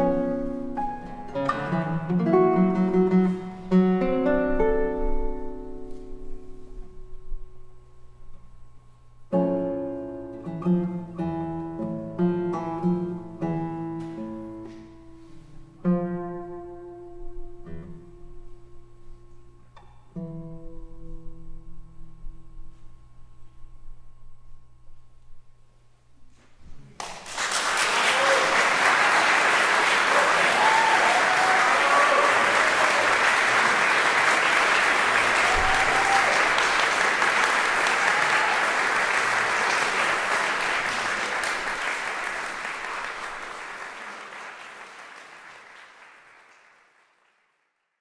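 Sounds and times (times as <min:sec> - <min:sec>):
classical guitar notes ringing: 0:00.0 - 0:08.5, 0:09.3 - 0:22.8
audience applauding: 0:27.0 - 0:47.9.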